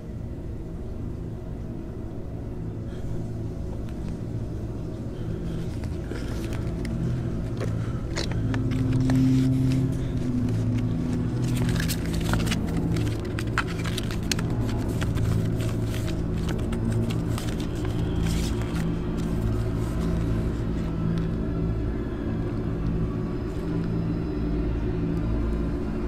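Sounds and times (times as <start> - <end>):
low droning rumble: 0.0 - 26.0
clicks and crackles: 5.6 - 20.2.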